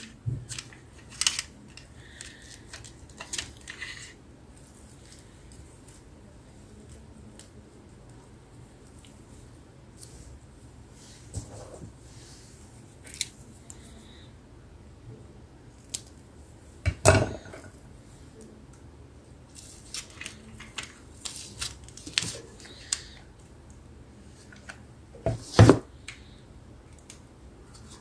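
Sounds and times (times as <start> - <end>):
hands working craft materials: 0.0 - 14.0.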